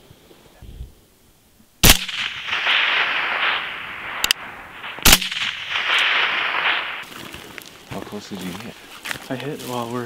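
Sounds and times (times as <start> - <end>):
rifle shots with echo: 1.8 - 7.1.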